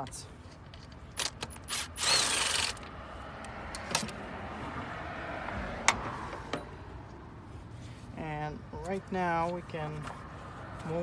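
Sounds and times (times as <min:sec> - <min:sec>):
cordless ratchet whining: 0:00.8 - 0:02.9.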